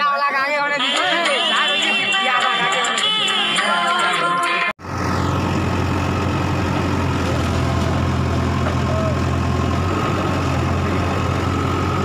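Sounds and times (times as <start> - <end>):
diesel engine idling: 4.8 - 12.0.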